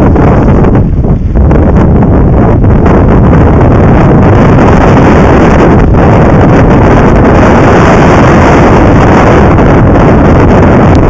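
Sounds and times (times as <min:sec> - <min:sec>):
waves rushing along hull: 0:00.0 - 0:11.0
wind buffeting microphone: 0:00.0 - 0:11.0.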